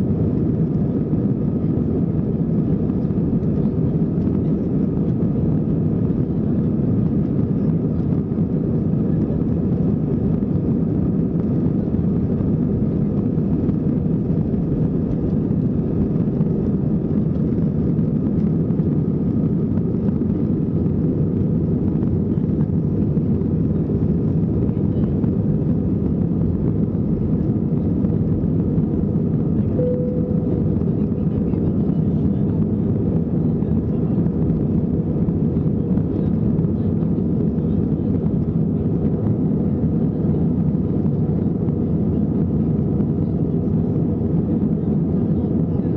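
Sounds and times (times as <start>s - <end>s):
airplane engine and airflow noise: 0.0s - 45.9s
short tone: 29.7s - 30.8s.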